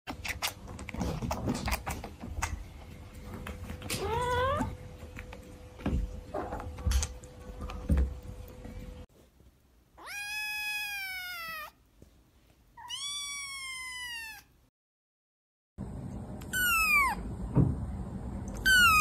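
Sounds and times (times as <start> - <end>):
cat meowing: 3.9 - 4.8, 10.0 - 11.8, 12.8 - 14.5, 16.5 - 17.2, 18.6 - 19.0.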